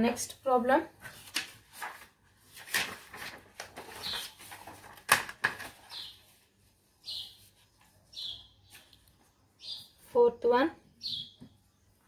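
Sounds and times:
paper rustling: 0:01.0 - 0:08.1
bird chirping: 0:05.8 - 0:06.4, 0:07.0 - 0:12.0.

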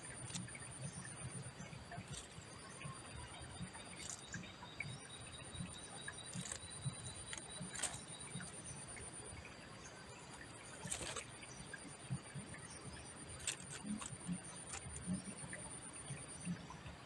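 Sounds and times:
soft ticks: 0:01.9 - 0:02.9, 0:13.4 - 0:16.6.

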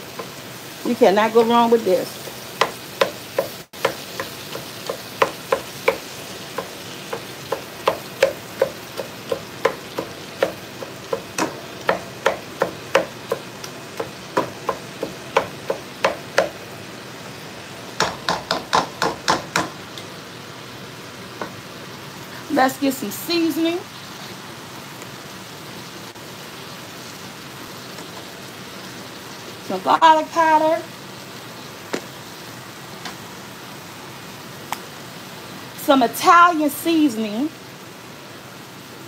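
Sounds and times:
meat sizzling: 0:00.0 - 0:39.0
meat chopper knocking on pan: 0:02.2 - 0:16.6, 0:18.0 - 0:20.1, 0:21.4 - 0:21.6.

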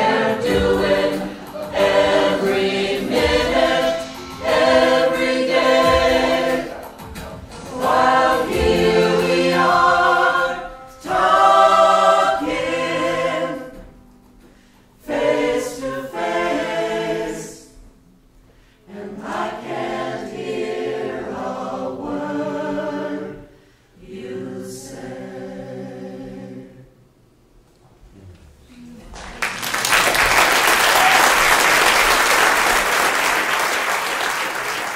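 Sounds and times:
vocal ensemble singing chords: 0:00.0 - 0:17.9, 0:18.5 - 0:27.2.

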